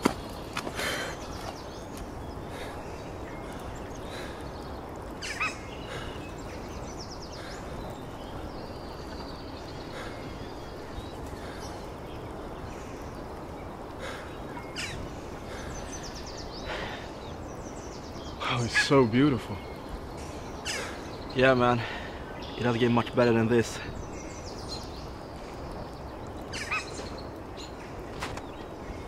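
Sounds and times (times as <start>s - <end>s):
bird calls: 0.0s - 29.0s
steady forest hiss: 0.0s - 29.0s.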